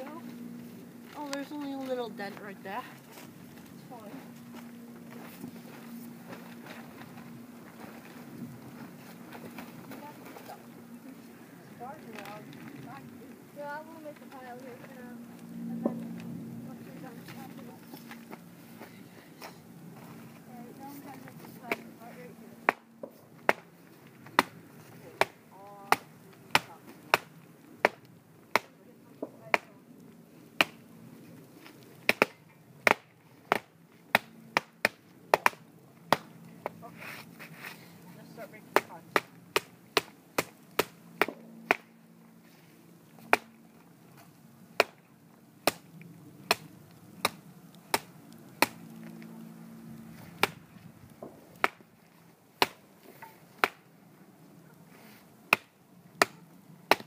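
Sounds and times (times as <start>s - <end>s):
axe chopping wood: 22.6s - 23.7s, 24.3s - 28.8s, 30.6s - 30.8s, 32.0s - 36.8s, 38.7s - 41.9s, 43.2s - 43.5s, 44.8s - 45.0s, 45.6s - 48.8s, 50.4s - 50.6s, 51.6s - 51.8s, 52.6s - 53.9s, 55.5s - 57.0s.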